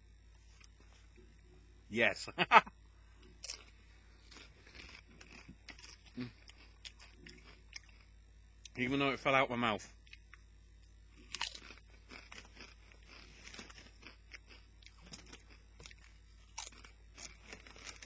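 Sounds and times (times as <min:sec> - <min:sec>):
person crunching tortilla chips: 0:03.3 - 0:08.1, 0:11.1 - 0:18.0.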